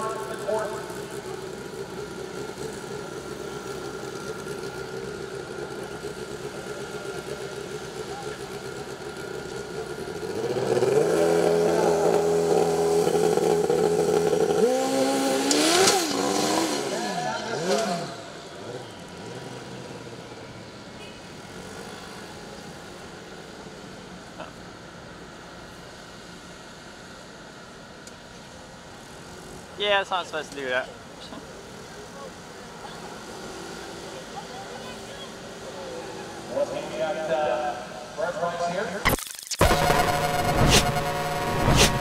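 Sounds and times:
motorcycle engine idling: 0.0 - 10.4
distant motorcycle engine: 0.0 - 20.0, 39.6 - 42.0.

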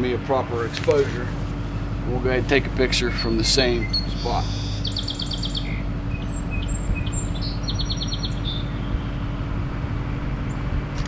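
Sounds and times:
low outdoor background noise: 0.0 - 11.0
songbird trilling: 2.6 - 9.3
short high bird chirps: 3.1 - 9.2.

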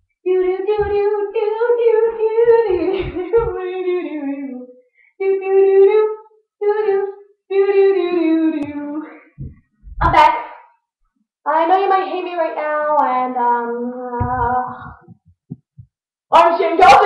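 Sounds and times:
faint low thumps: 0.3 - 3.8, 8.6 - 10.3, 14.2 - 16.0.

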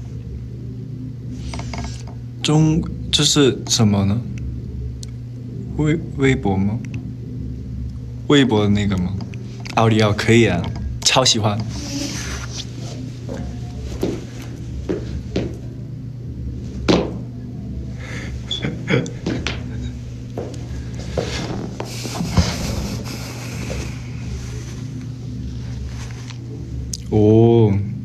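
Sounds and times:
steady low hum: 0.0 - 28.0
knocks and thumps: 16.9 - 17.2.

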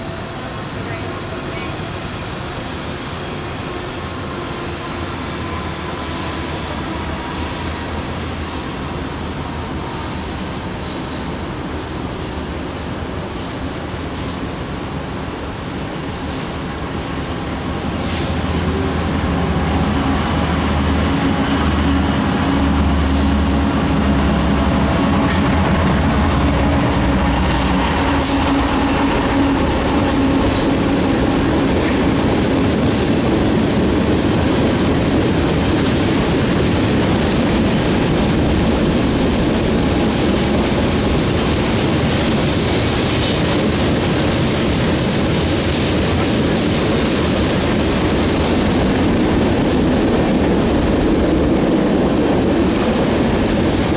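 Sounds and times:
train cars rumbling and clattering: 0.0 - 53.9
locomotive engine humming: 17.7 - 43.0.

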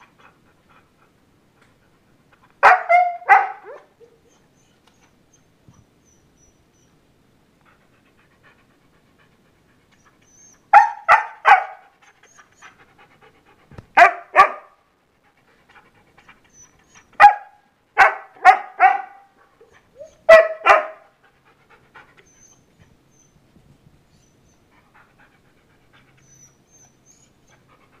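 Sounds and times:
dog barking: 2.6 - 3.9, 10.7 - 11.9, 14.0 - 14.8, 17.2 - 19.3, 20.3 - 21.1.

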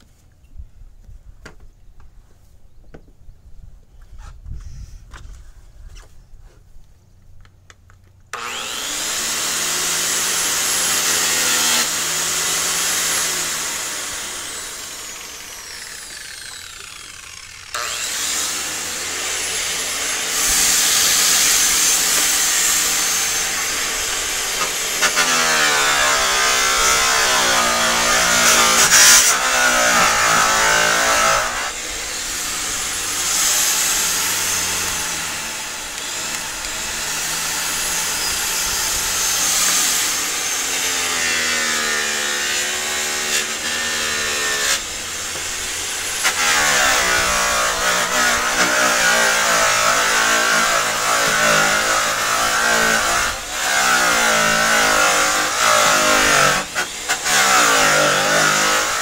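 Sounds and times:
electric polisher on metal: 8.4 - 59.0.

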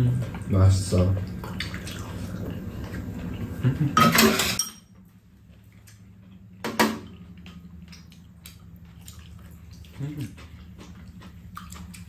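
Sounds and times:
steady low hum: 0.0 - 12.0
utensils clinking on bowls: 4.0 - 5.0.

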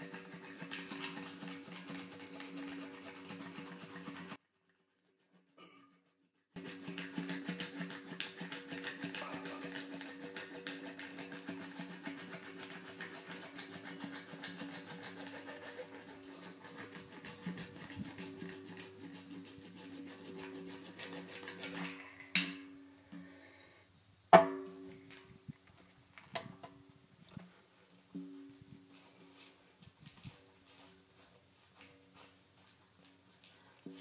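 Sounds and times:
sharp knocks: 24.4 - 24.8.

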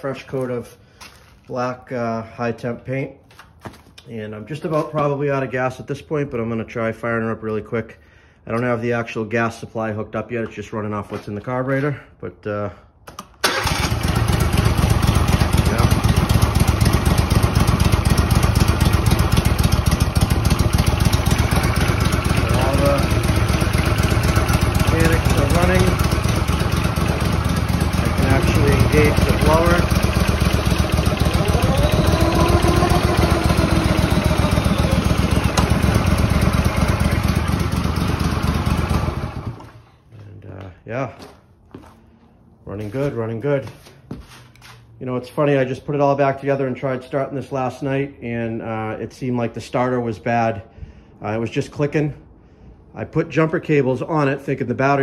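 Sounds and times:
mower engine running: 13.4 - 39.8.

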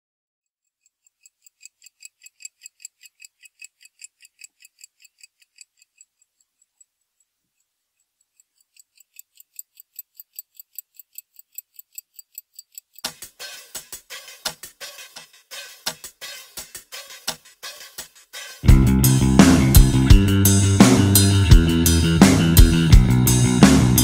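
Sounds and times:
pocket watch ticking: 0.4 - 19.0.

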